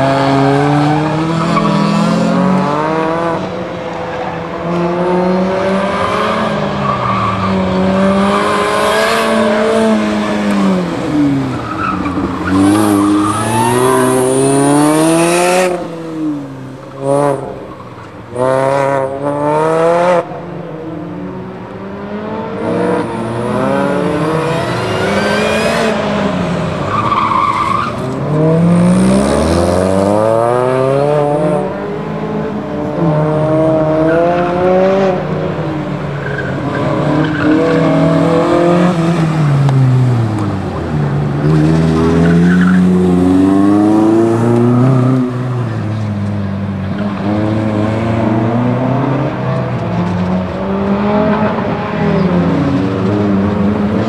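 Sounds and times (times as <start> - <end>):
tires squealing: 0.0 - 2.6, 3.8 - 16.0, 22.9 - 30.3, 36.0 - 48.1
car engines revving: 0.0 - 54.0.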